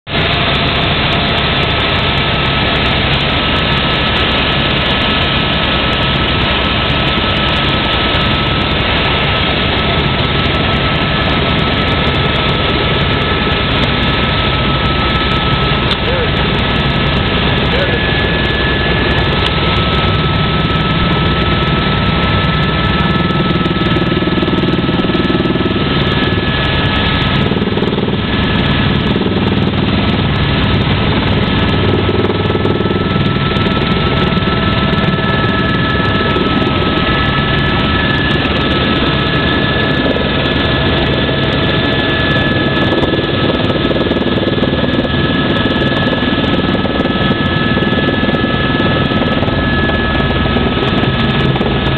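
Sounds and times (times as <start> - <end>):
helicopter engine and rotor drone: 0.0 - 51.9
high steady whine: 0.1 - 51.9.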